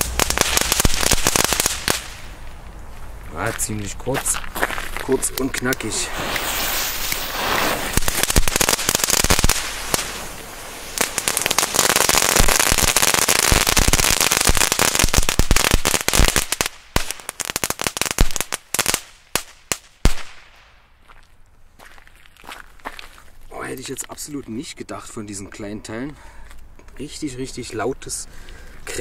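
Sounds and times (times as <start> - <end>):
crackling fireworks: 0.0 - 2.8, 3.5 - 20.9.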